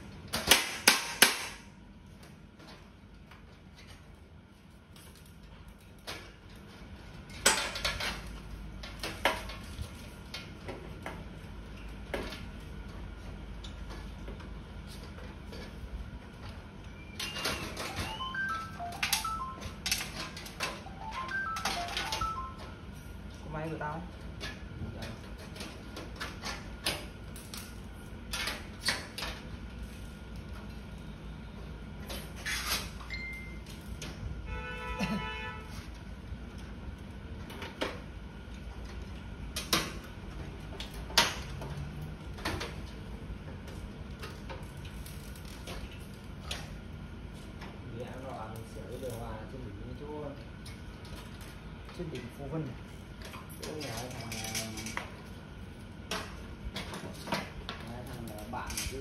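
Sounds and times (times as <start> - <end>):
metal parts clinking on concrete: 7.3 - 8.4, 53.6 - 55.1.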